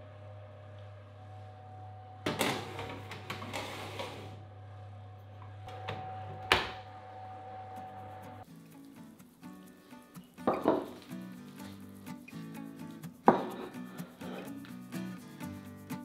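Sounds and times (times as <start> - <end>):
oven humming: 0.0 - 8.4
oven door banging shut: 2.3 - 3.3
baking dish scraping on metal rack: 2.3 - 4.4.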